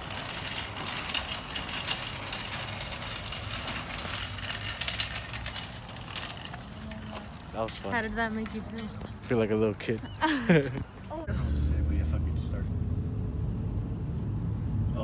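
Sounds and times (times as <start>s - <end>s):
shopping cart rattling on asphalt: 0.0s - 10.7s.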